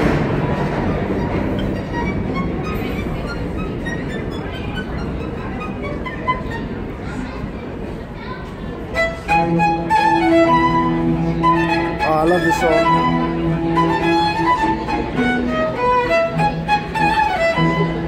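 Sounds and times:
violin melody with vibrato: 0:00.0 - 0:07.0, 0:08.9 - 0:18.0
cello low held notes: 0:08.9 - 0:18.0.

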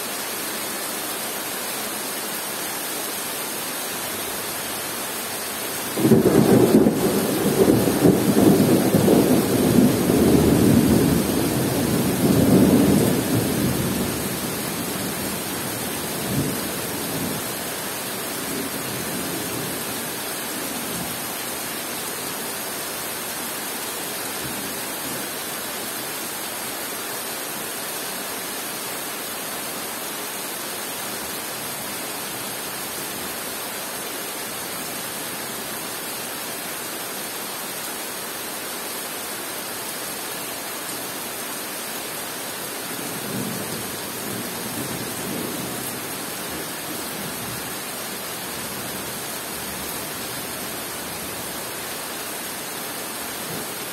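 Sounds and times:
heavy rain on foliage: 0:00.0 - 0:53.9
thunder rumbling: 0:06.0 - 0:14.0.

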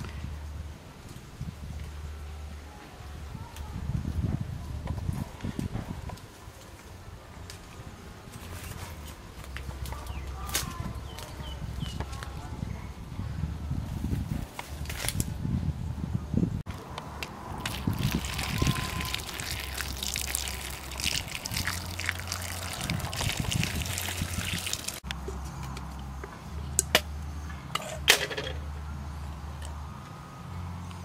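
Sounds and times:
water trickling and splashing: 0:17.5 - 0:25.0
leaves clicking into metal can: 0:17.6 - 0:25.0.

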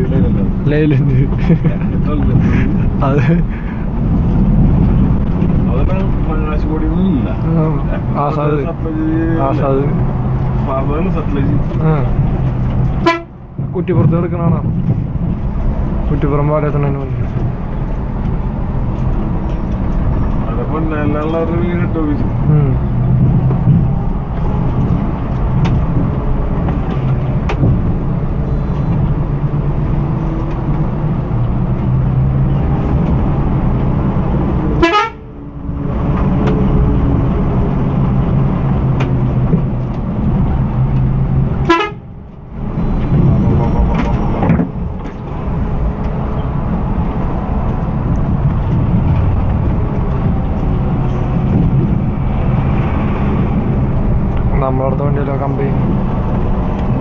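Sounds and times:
diesel engine running under load: 0:00.0 - 0:57.0
horn toots: 0:13.0 - 0:13.4, 0:34.8 - 0:35.3, 0:41.6 - 0:42.1.

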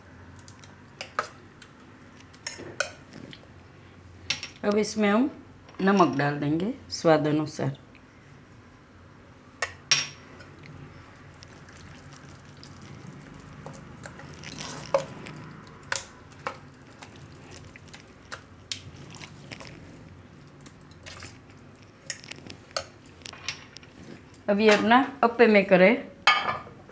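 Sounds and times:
spoon stirring thick batter: 0:10.4 - 0:23.3.

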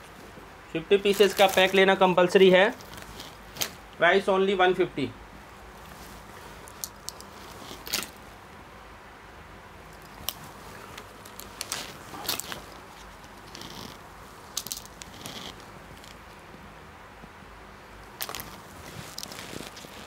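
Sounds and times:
garments rustling: 0:01.0 - 0:03.8, 0:05.7 - 0:08.4, 0:09.9 - 0:16.3, 0:18.1 - 0:20.0.

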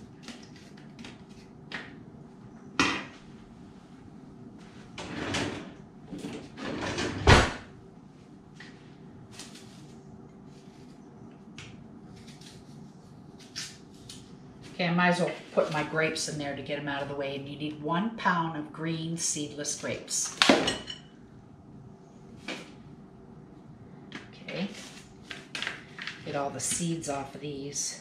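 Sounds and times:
drawer shutting with thud: 0:06.6 - 0:07.6.

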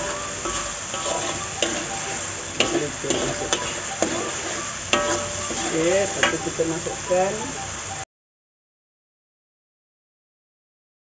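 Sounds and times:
metal spatula scraping a wok: 0:00.0 - 0:07.0
paste sizzling in oil: 0:00.0 - 0:08.0.

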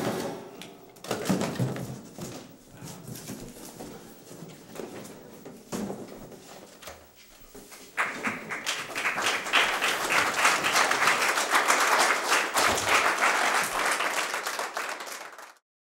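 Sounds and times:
group of people applauding: 0:07.8 - 0:15.6.

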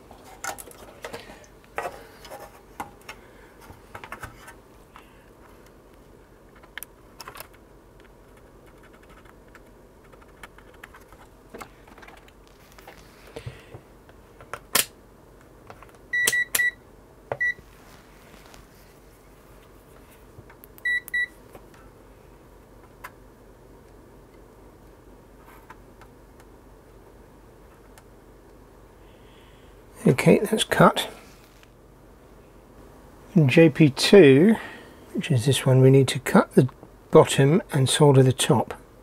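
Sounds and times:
multimeter beeps: 0:16.1 - 0:16.8, 0:20.8 - 0:21.4.

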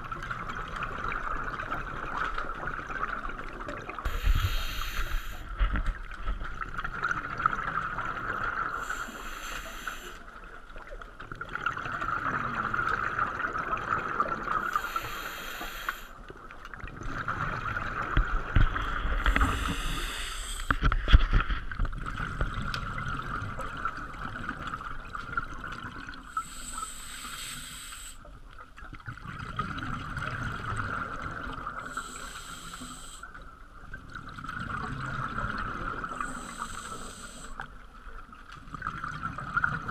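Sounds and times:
diver inhaling through regulator: 0:04.0 - 0:05.6, 0:08.8 - 0:10.2, 0:14.6 - 0:16.2, 0:19.1 - 0:20.9, 0:26.3 - 0:28.3, 0:31.8 - 0:33.3, 0:36.2 - 0:37.6
exhaled bubbles: 0:28.8 - 0:39.9.

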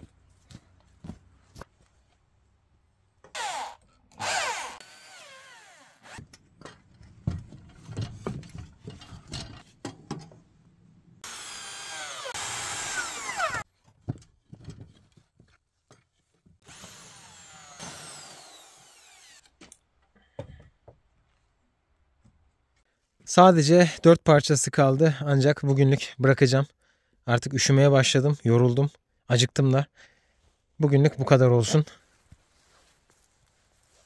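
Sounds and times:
power drill driving screws: 0:03.3 - 0:06.2, 0:11.2 - 0:13.6, 0:16.6 - 0:19.6.

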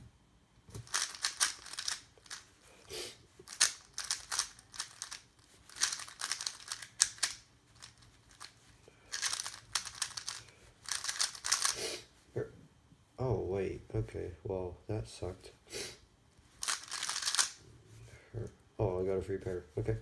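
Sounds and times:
puzzle cube clicking: 0:00.8 - 0:02.5, 0:03.4 - 0:08.5, 0:09.1 - 0:11.8, 0:16.6 - 0:17.6.

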